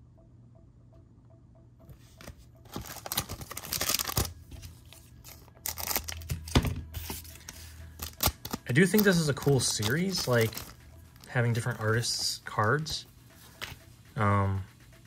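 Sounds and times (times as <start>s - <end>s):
wrapper tearing open: 2.7s - 4.3s, 5.6s - 6.3s, 8.0s - 9.1s
wrapper crinkling: 2.7s - 4.4s, 5.2s - 6.4s, 7.4s - 12.9s.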